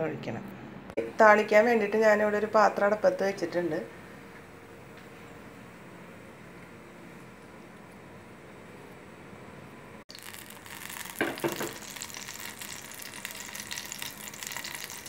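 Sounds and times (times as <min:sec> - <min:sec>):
faint steady hum: 0:00.0 - 0:15.0
oil sizzling and crackling: 0:10.1 - 0:15.0.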